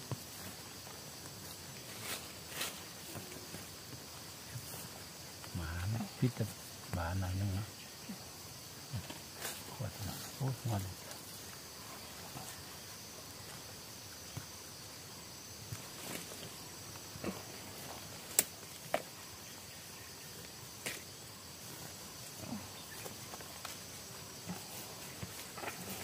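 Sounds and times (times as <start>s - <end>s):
insect buzz: 0.0s - 26.0s
rustles: 0.0s - 26.0s
twig snap: 18.2s - 19.1s.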